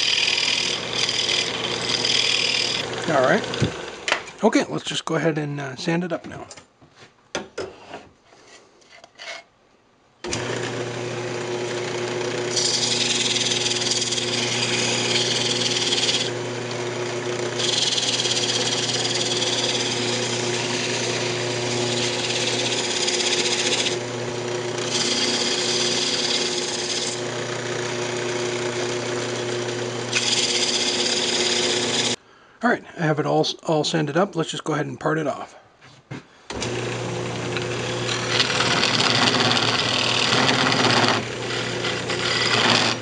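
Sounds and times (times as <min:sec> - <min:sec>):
wood lathe humming: 0:00.0 - 0:04.2, 0:10.2 - 0:32.2, 0:36.5 - 0:43.0.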